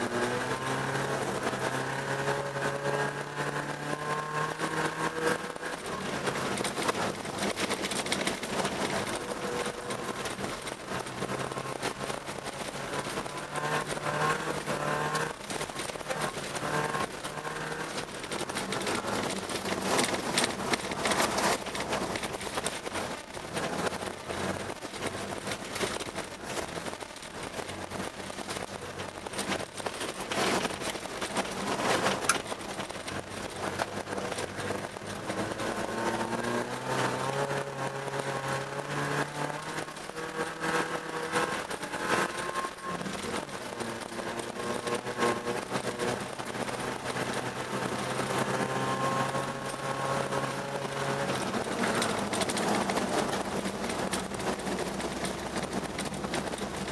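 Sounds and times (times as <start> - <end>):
car engine revving: 0.0 - 56.9
tyres rushing and spraying snow: 0.0 - 56.9.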